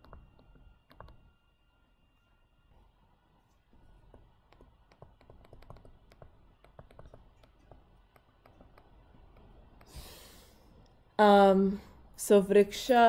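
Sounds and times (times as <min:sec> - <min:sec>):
stylus tapping on tablet: 0:00.0 - 0:01.3, 0:03.9 - 0:10.0.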